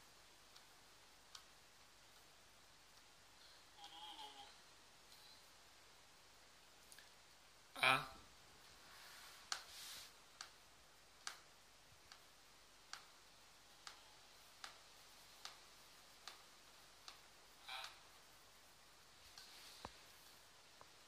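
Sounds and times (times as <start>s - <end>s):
faint regular ticks: 0.3s - 3.1s, 9.4s - 10.6s, 11.2s - 21.0s.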